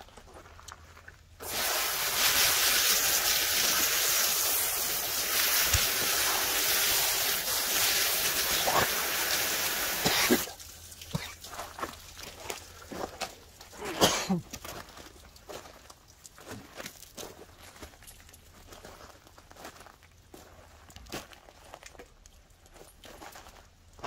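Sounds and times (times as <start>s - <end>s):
hose water spraying: 1.4s - 12.8s.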